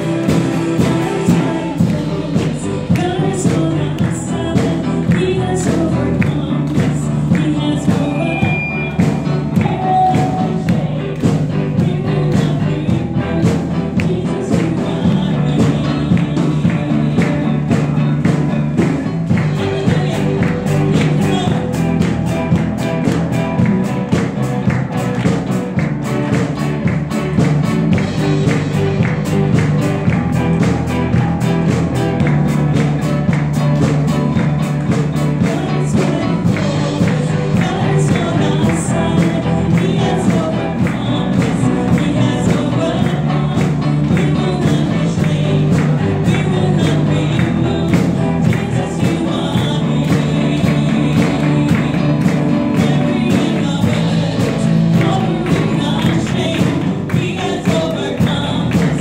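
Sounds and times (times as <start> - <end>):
woman singing into microphone: 0.0 - 22.2, 34.8 - 59.0
backing vocalists: 0.0 - 59.0
instrumental accompaniment with beat: 0.0 - 59.0.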